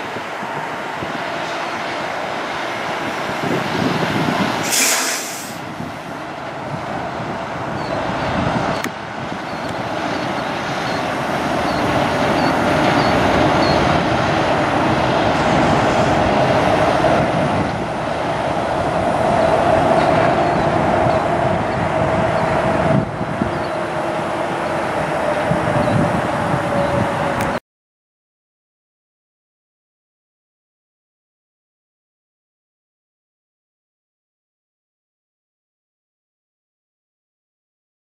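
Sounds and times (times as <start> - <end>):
air brake hiss: 4.6 - 5.7.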